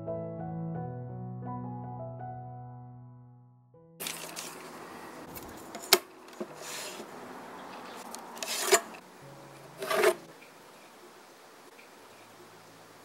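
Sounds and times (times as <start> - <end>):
pencil scratching on wood: 5.8 - 7.2, 8.0 - 9.0, 9.7 - 10.3.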